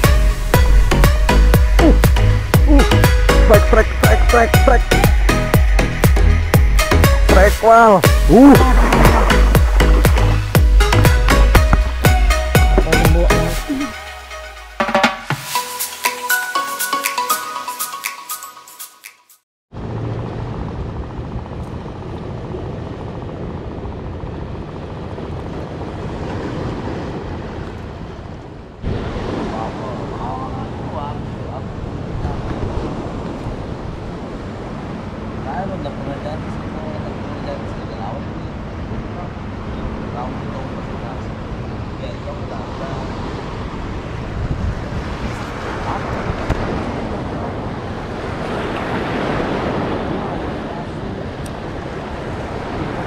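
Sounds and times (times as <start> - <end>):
sea water washing: 0.0 - 14.1, 19.8 - 37.2, 38.4 - 53.0
wind buffeting microphone: 19.9 - 35.7, 37.8 - 53.0.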